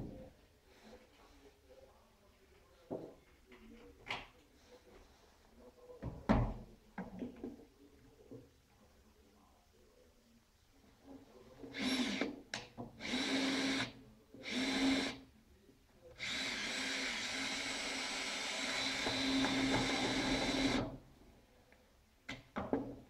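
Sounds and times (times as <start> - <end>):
cordless drill into wood: 11.8 - 12.3, 13.0 - 15.2, 16.2 - 20.9.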